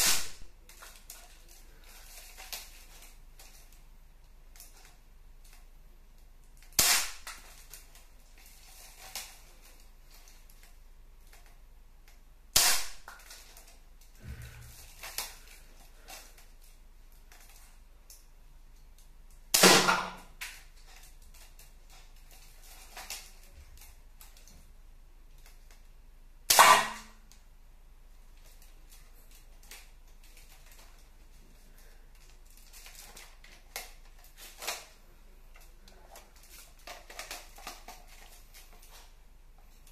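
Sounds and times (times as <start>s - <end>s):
toy rifle shot snap: 6.8s - 7.2s, 19.5s - 20.2s, 26.5s - 27.1s.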